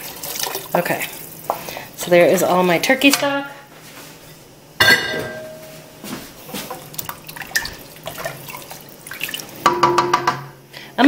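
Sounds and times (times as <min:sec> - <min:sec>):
liquid sloshing and dripping: 0:00.0 - 0:01.8, 0:06.5 - 0:10.0
wooden spoon stirring in a pot: 0:00.0 - 0:04.4, 0:06.1 - 0:09.7.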